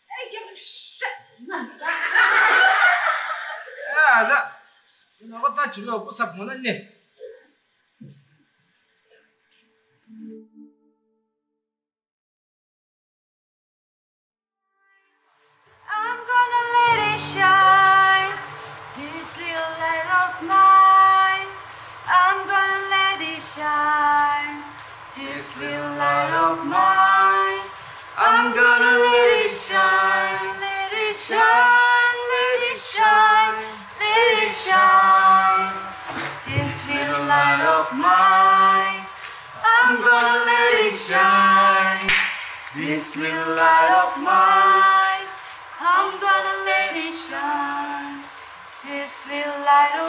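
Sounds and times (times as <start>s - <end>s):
woman singing: 15.8s - 41.5s, 42.8s - 50.0s.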